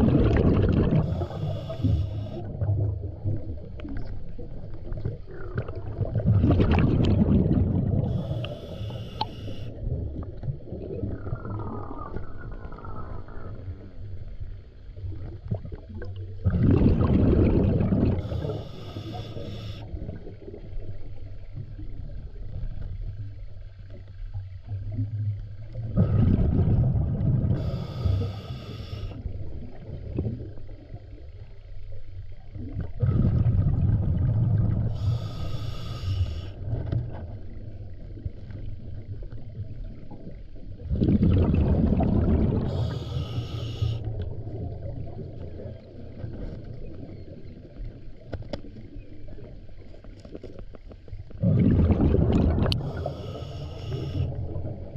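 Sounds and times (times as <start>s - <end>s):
diver exhaling bubbles: 0.0s - 3.6s, 5.0s - 13.8s, 15.5s - 20.4s, 25.8s - 30.6s, 32.6s - 37.1s, 40.8s - 46.4s, 51.4s - 54.9s
low underwater rumble: 0.0s - 54.9s
regulator hiss: 1.0s - 2.5s, 8.1s - 9.7s, 18.2s - 19.9s, 27.6s - 29.2s, 34.9s - 36.6s, 42.7s - 44.1s, 52.8s - 54.3s.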